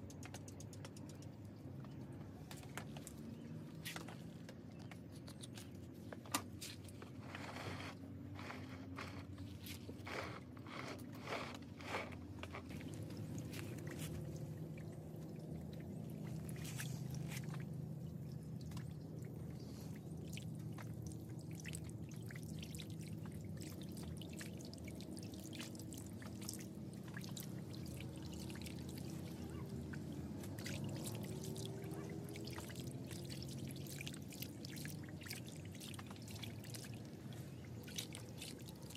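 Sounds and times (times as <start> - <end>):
sharp clicks and taps: 0.0 - 1.5
water pouring and trickling: 0.0 - 38.9
water splashes: 11.9 - 38.9.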